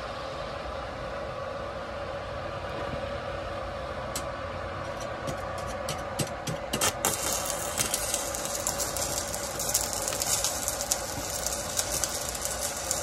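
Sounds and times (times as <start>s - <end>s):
steady welder hum: 3.2s - 13.0s
welding arc crackles and pops: 5.2s - 13.0s.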